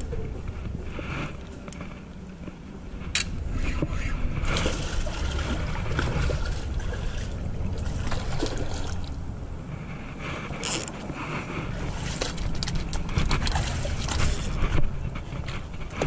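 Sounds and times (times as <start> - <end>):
wind rumble on microphone: 0.0 - 16.0
fish splashing and thrashing in water: 3.8 - 16.0.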